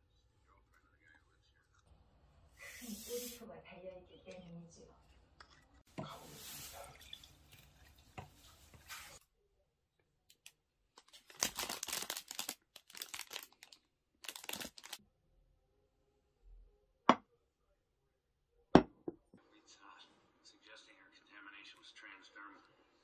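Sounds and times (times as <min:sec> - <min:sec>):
water pouring into a glass: 0:06.2 - 0:09.0
plastic wrapper crinkling: 0:10.4 - 0:15.0.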